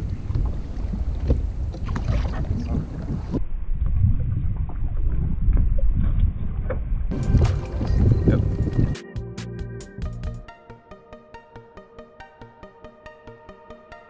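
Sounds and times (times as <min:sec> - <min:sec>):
water slapping plastic hull: 0:00.0 - 0:03.4
wind rumbling on microphone: 0:00.0 - 0:09.0.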